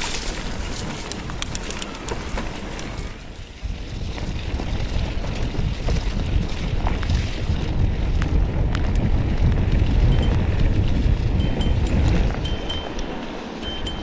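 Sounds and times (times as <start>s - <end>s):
bike tyres rolling on wet gravel: 0.0s - 13.6s
wind buffeting microphone: 0.0s - 14.0s.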